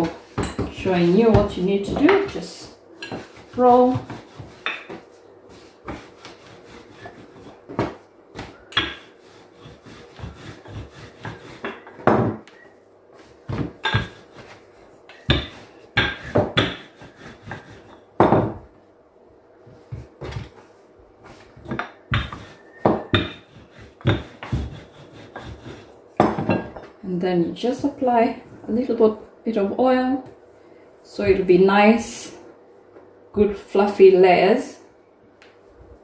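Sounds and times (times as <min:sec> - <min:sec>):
rolling pin rolling dough: 0:00.0 - 0:18.8, 0:19.6 - 0:26.9
rolling pin knocking on counter: 0:07.7 - 0:09.1, 0:10.2 - 0:12.5, 0:15.1 - 0:18.6, 0:21.6 - 0:25.6.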